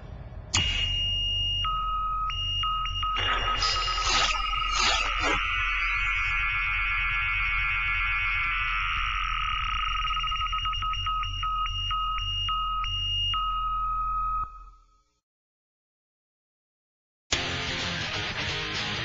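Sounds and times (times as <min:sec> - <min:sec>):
warbling electronic trill: 0:00.6 - 0:13.6
steady high electronic tones: 0:00.6 - 0:14.8.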